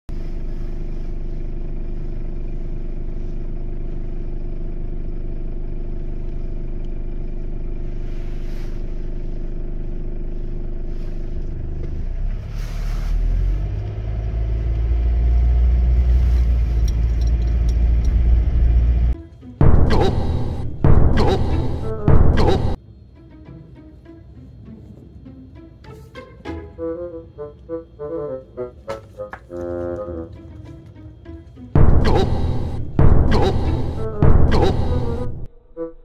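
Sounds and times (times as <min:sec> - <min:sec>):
car engine deep rumble: 0:10.3 - 0:22.8
car engine humming: 0:13.4 - 0:22.8, 0:31.8 - 0:35.6.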